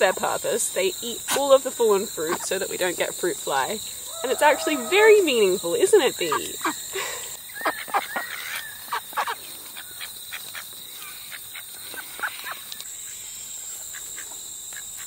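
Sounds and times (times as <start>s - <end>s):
high-pitched insect drone: 0.0s - 15.0s
ducks quacking softly: 6.0s - 7.1s.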